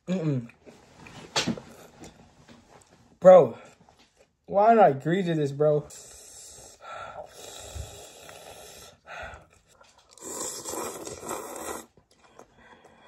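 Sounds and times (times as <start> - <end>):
person breathing: 5.8 - 10.3, 12.2 - 13.0
person slurping noodles: 5.9 - 13.0.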